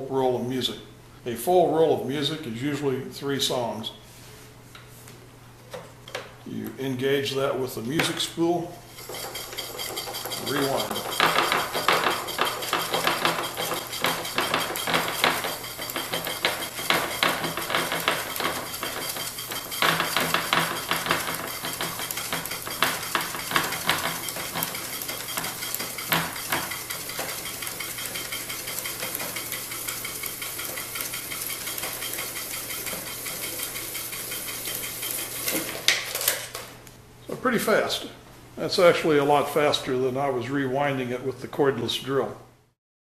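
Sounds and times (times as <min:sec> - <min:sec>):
rewind mechanism clattering: 0:08.9 - 0:36.7.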